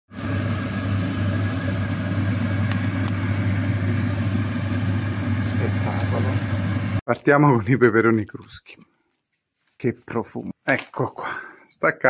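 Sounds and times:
low machine hum: 0.2s - 7.0s.

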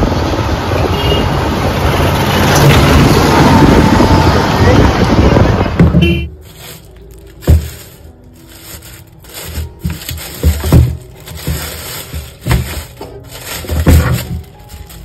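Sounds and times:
road traffic noise: 0.0s - 15.0s
plastic bag crinkling: 6.3s - 15.0s.

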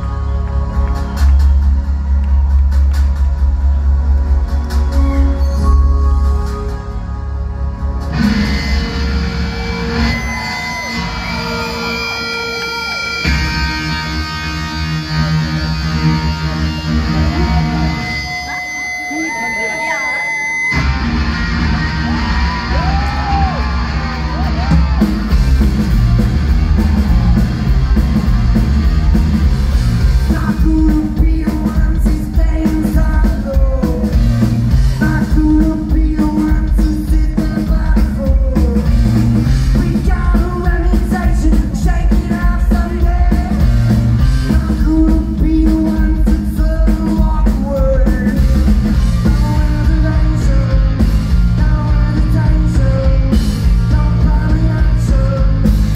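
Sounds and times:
bass guitar: 0.0s - 19.2s, 20.5s - 55.9s
drums: 0.0s - 55.9s
person singing lead vocals: 30.2s - 55.9s.

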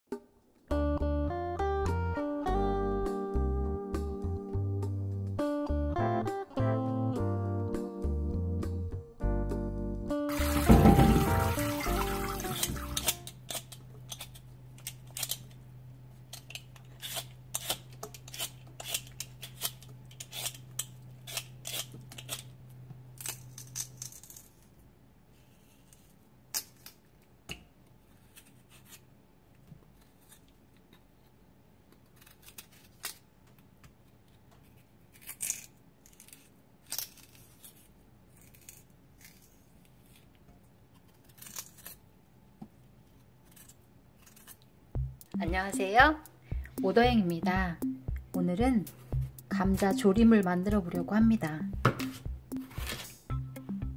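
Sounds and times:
knife scraping potato skin: 12.2s - 15.6s, 16.3s - 22.5s, 23.2s - 24.7s, 25.3s - 27.0s, 28.0s - 29.1s, 29.9s - 31.4s, 32.0s - 33.3s, 34.6s - 42.0s, 43.1s - 44.7s
low steady hum: 38.0s - 53.9s.

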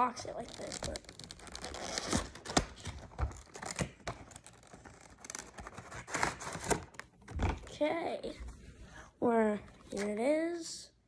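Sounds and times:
cardboard rustling: 0.4s - 7.8s.

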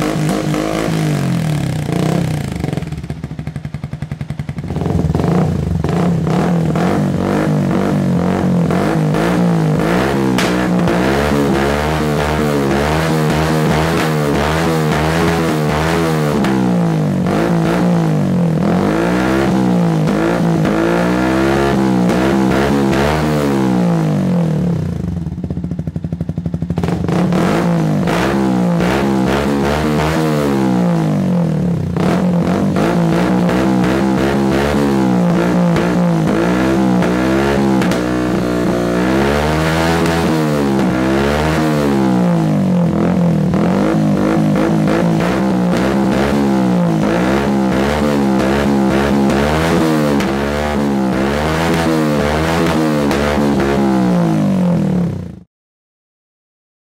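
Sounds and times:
motorbike engine revving: 0.0s - 55.5s.

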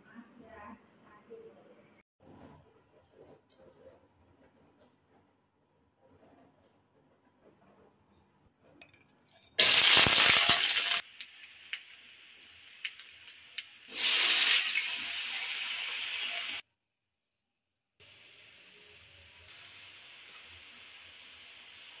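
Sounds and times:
food sizzling in hot oil: 9.5s - 16.6s.

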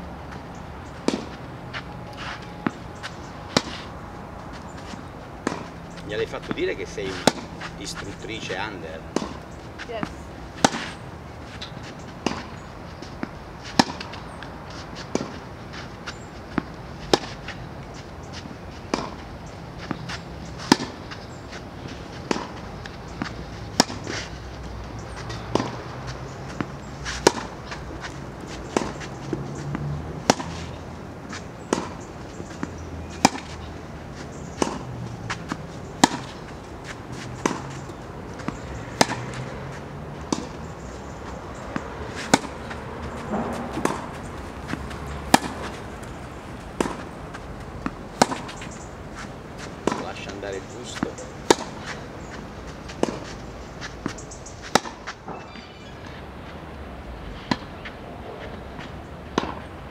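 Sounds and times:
tennis balls struck by rackets: 1.0s - 3.9s, 4.5s - 56.1s, 57.4s - 59.8s.

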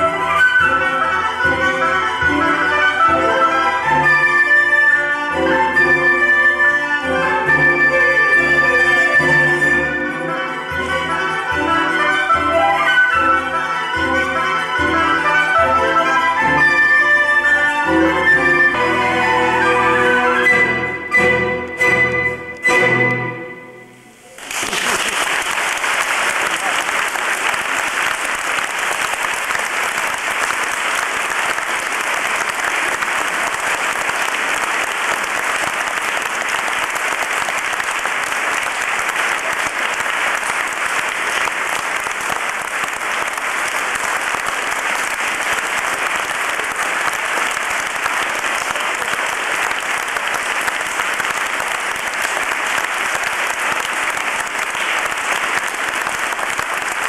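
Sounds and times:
audience applauding: 24.3s - 57.0s.

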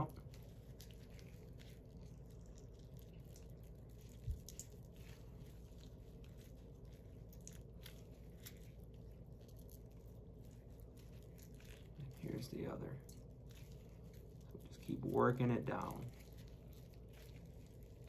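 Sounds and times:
wet squishing of raw meat: 0.0s - 18.0s.

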